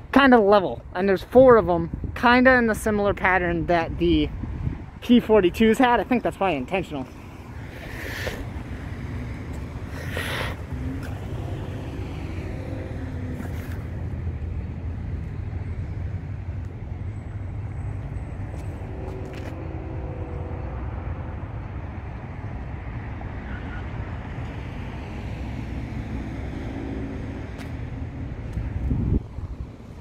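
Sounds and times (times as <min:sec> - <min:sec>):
traffic rumble: 0:00.0 - 0:30.0
wind: 0:00.0 - 0:30.0
distant train horn: 0:19.0 - 0:21.1.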